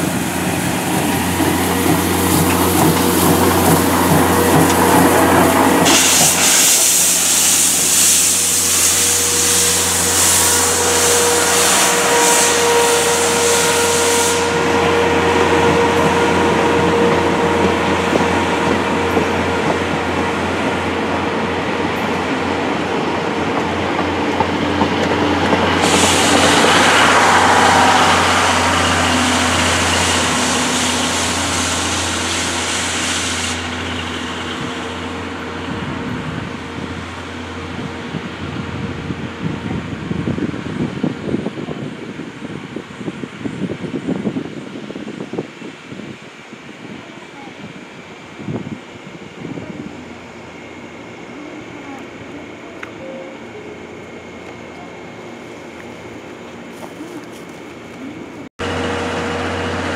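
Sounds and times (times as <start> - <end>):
train wheels clattering on rails: 0.0 - 8.0, 21.8 - 34.8
steam hissing: 0.0 - 22.9, 24.6 - 35.9.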